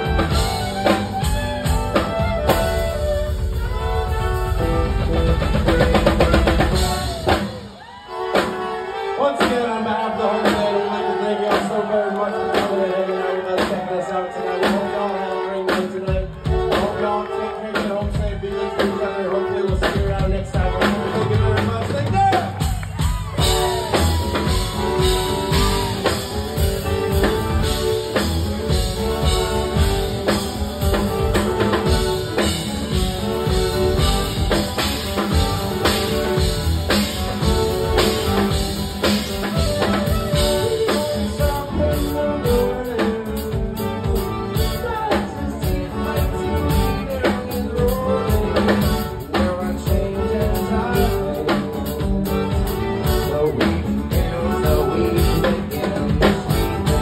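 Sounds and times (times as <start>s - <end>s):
violin: 0.0s - 11.2s
drum kit: 0.0s - 15.1s, 15.7s - 57.0s
guitars: 0.0s - 57.0s.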